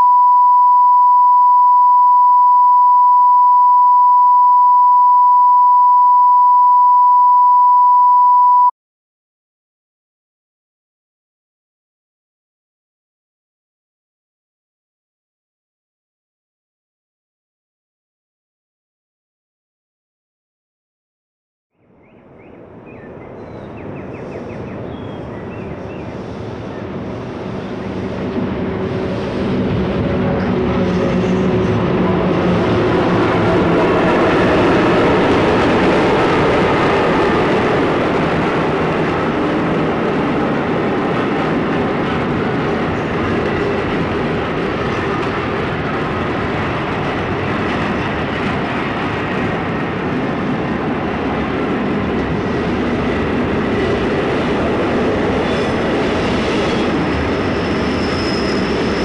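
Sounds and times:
sine test tone: 0.0 - 8.7
train passing: 23.8 - 59.0.

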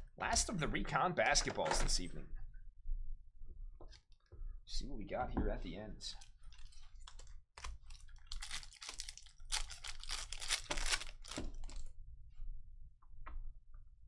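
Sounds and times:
foil wrapper tearing and crinkling: 6.5 - 11.8.

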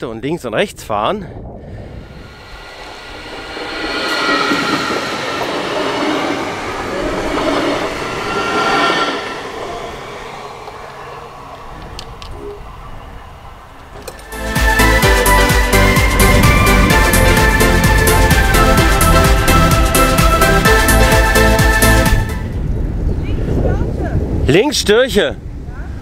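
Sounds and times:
train rumbling past: 1.7 - 23.0
steady high tones: 1.8 - 11.9
background music: 14.3 - 22.6.

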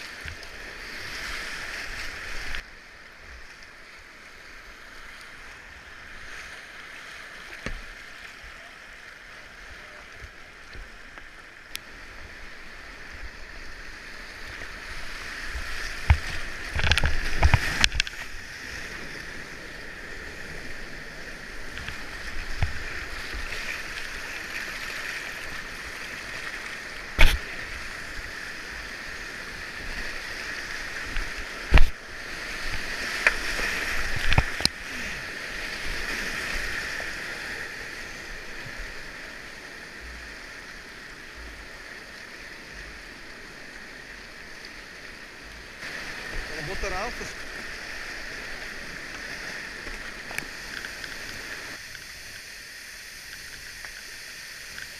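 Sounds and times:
whitewater rapids rushing: 5.3 - 44.2, 45.7 - 54.9.

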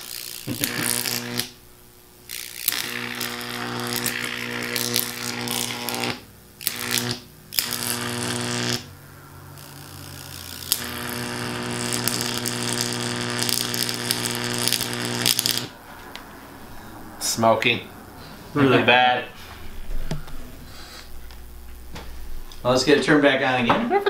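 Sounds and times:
electric arc buzzing and crackling: 0.0 - 16.2.

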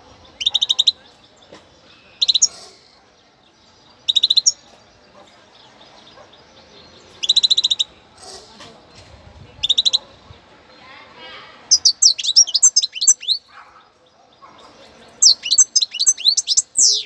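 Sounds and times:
goldfinch singing: 11.7 - 13.5, 14.6 - 17.0.

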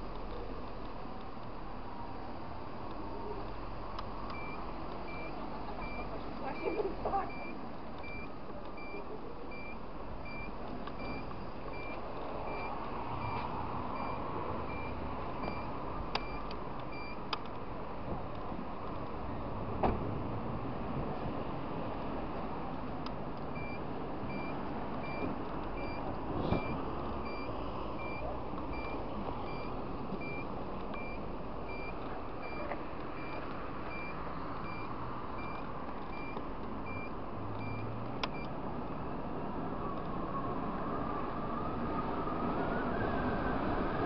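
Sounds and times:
wind and road noise: 0.0 - 44.0
high electronic beeps: 4.3 - 13.4, 14.0 - 17.2, 23.6 - 38.5.

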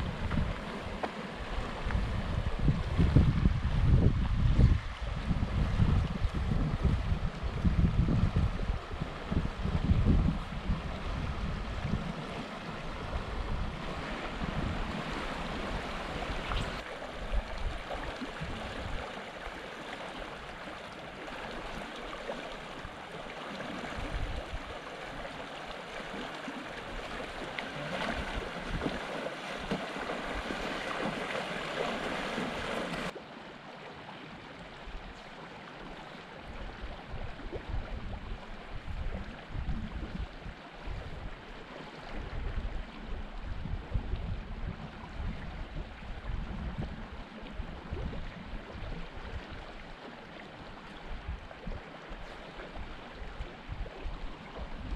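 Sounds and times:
wind gusting on microphone: 0.0 - 19.0, 36.5 - 49.7
creek water rushing over rocks: 0.0 - 54.9.

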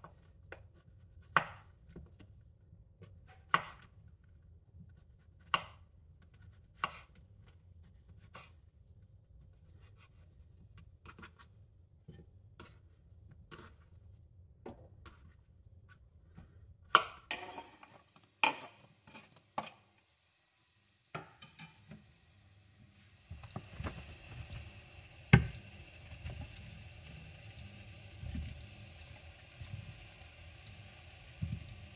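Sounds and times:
hot oil sizzling in pan: 17.3 - 31.9
wooden board knocking frying pan: 21.1 - 21.8, 25.3 - 25.6.

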